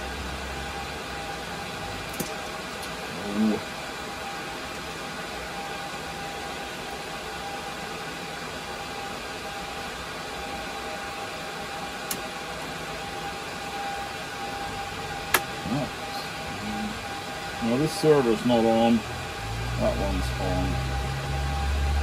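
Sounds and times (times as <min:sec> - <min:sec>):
faint steady whine: 0:00.0 - 0:22.0
server cooling fans whirring: 0:00.0 - 0:22.0.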